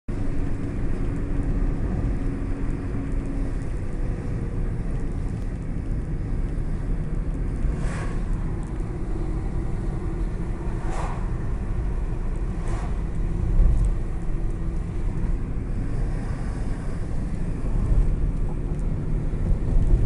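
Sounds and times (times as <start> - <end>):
car cabin road rumble: 0.1 - 20.0
faint engine hum: 0.1 - 20.0
short rush of noise: 7.7 - 8.5, 10.7 - 11.5.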